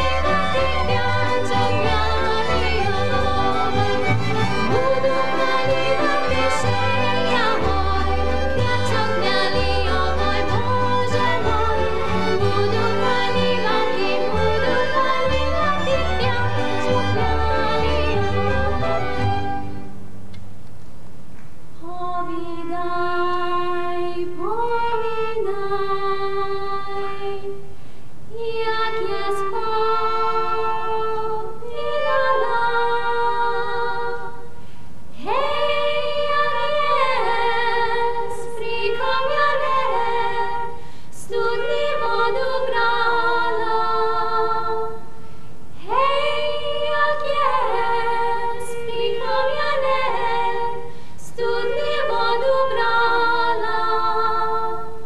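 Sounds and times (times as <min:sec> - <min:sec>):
women singing a cappella harmony: 0:00.0 - 0:19.8, 0:21.8 - 0:27.7, 0:28.3 - 0:55.0
singers breathing: 0:27.6 - 0:28.3, 0:34.5 - 0:35.1, 0:40.7 - 0:41.2, 0:45.1 - 0:45.8, 0:50.8 - 0:51.4.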